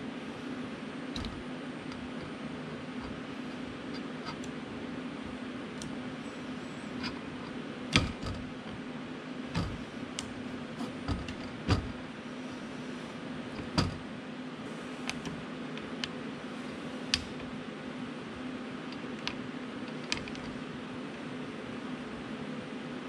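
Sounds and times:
steady low hum: 0.0 - 23.0
plastic and metal parts knocking: 11.0 - 12.0.

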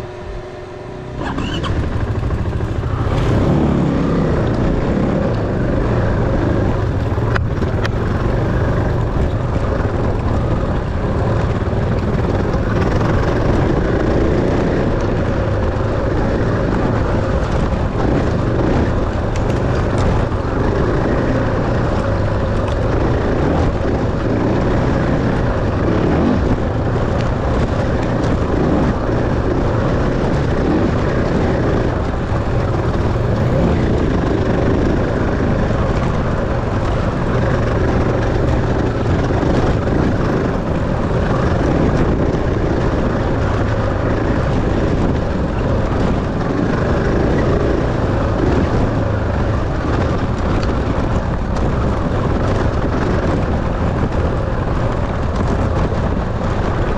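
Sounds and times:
dirt bike engine running: 0.0 - 56.9.

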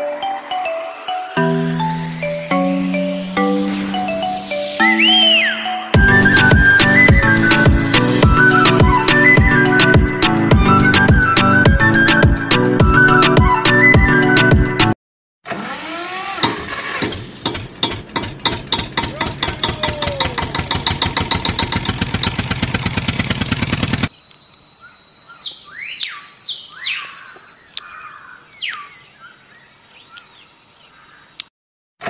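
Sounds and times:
birds chirping: 0.0 - 10.3, 24.1 - 31.5
engine chugging: 15.8 - 24.1.

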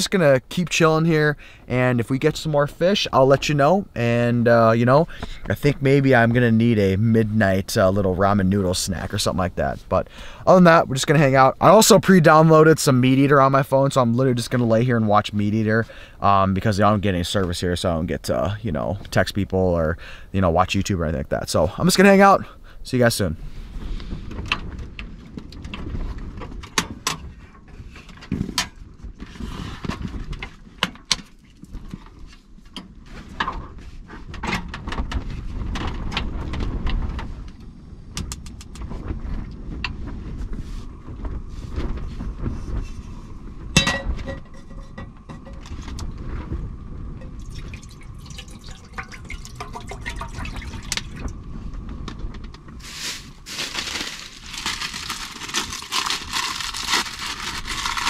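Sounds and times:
camp gear knocking and clattering: 24.3 - 37.4, 43.6 - 46.2
water being poured: 47.4 - 51.3.

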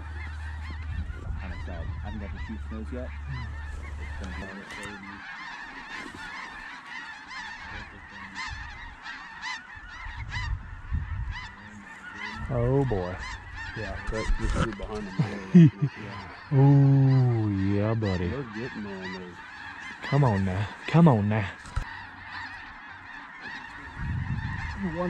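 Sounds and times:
low rumble: 0.0 - 4.6, 23.9 - 25.0
geese honking: 0.0 - 25.0.

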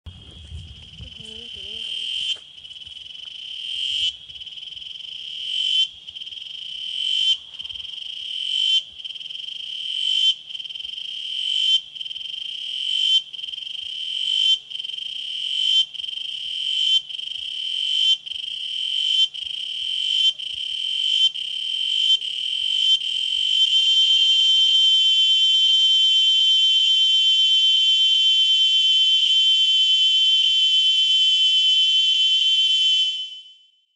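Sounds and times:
cicadas buzzing: 0.2 - 25.0.

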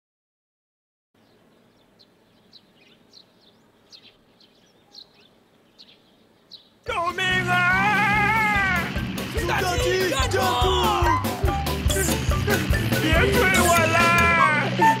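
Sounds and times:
bird chirps: 1.2 - 6.9
loud wavering pitched sound: 7.4 - 15.0.

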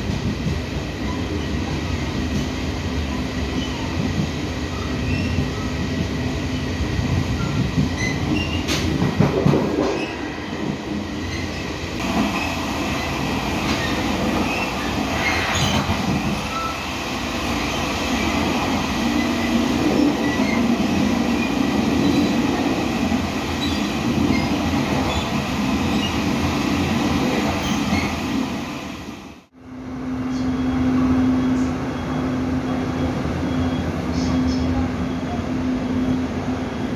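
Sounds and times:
train wheels rumbling on rails: 0.0 - 36.9.

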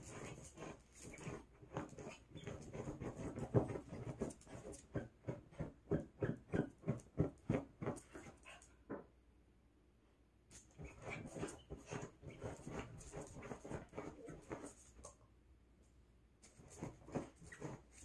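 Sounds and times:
dog digging at pillow: 0.0 - 5.8, 10.7 - 14.9, 16.4 - 18.0.

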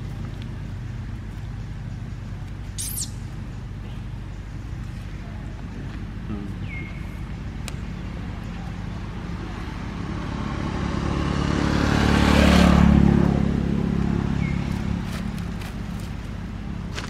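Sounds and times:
vehicle driving past: 8.1 - 16.1.

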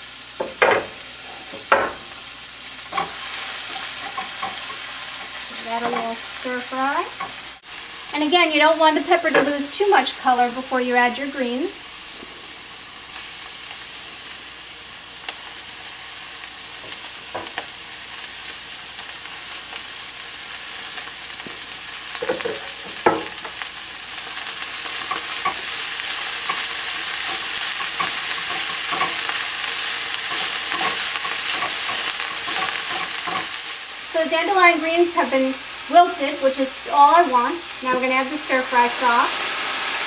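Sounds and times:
vegetables sizzling in frying pan: 0.0 - 40.0
spatula knocking and scraping pan: 0.4 - 2.2, 2.9 - 6.3, 9.2 - 9.8, 22.2 - 23.6, 26.4 - 29.5, 30.1 - 33.6.

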